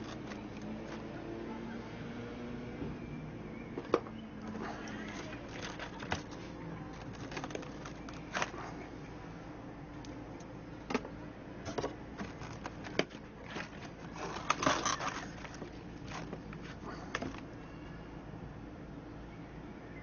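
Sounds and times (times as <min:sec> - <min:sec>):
resin pieces clicking and scraping: 0:00.0 - 0:01.1, 0:04.5 - 0:08.6.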